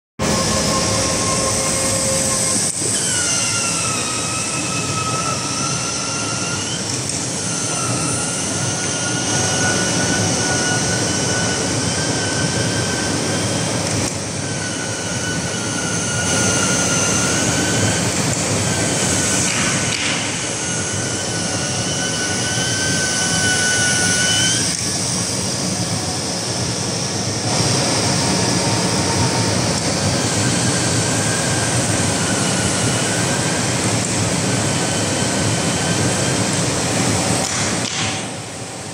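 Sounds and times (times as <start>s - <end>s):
cutting machine rushing noise: 0.2s - 37.9s.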